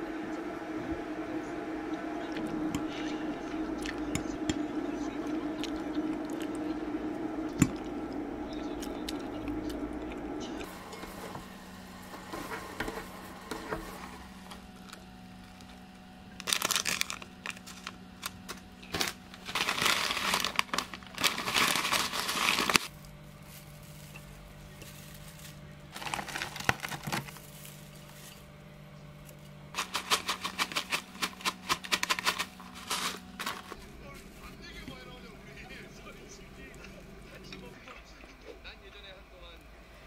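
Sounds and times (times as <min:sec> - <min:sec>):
dry flakes rustling: 0:10.6 - 0:37.8
plastic pouch crinkling: 0:16.4 - 0:28.4, 0:29.7 - 0:34.6.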